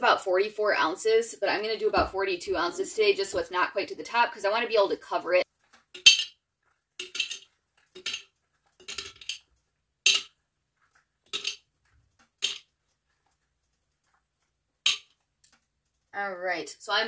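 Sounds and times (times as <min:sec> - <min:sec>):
ice cubes clinking into glass jar: 0:06.0 - 0:06.4, 0:07.0 - 0:09.4, 0:10.1 - 0:10.3, 0:11.3 - 0:11.6, 0:12.4 - 0:12.6.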